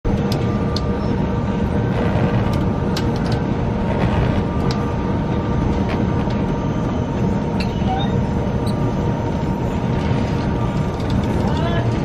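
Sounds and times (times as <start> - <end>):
low rumble: 0.1 - 12.0
machine hum: 0.1 - 12.0
rigging clicking and creaking: 10.0 - 12.0.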